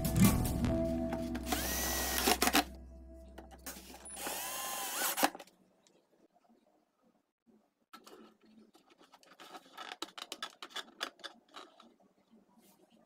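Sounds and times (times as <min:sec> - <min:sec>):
cordless drill whining: 0:01.5 - 0:02.7, 0:04.0 - 0:05.4.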